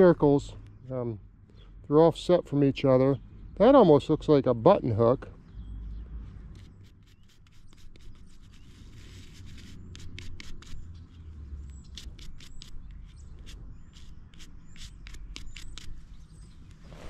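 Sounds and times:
hands rubbing metal object: 6.6 - 10.8.

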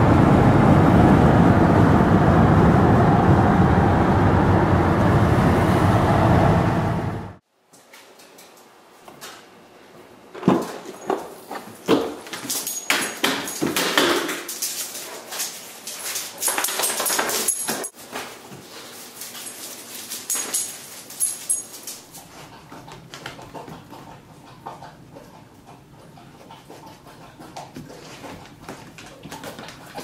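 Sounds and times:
light jingle: 12.4 - 14.0, 15.9 - 18.0, 19.3 - 22.0.

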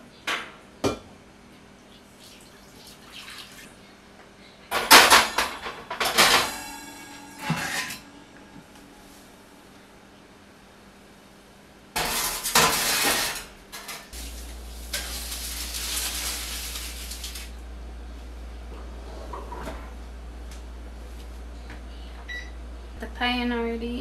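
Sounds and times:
low steady hum: 0.9 - 24.0
metal pans clattering on oven rack: 4.7 - 8.2, 12.0 - 14.2.

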